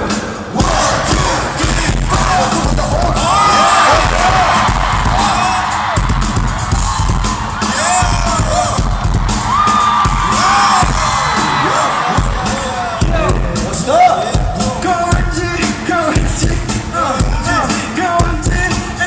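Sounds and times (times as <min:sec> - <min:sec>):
loud dance music: 0:00.0 - 0:19.0
fans screaming and whooping: 0:02.0 - 0:14.4.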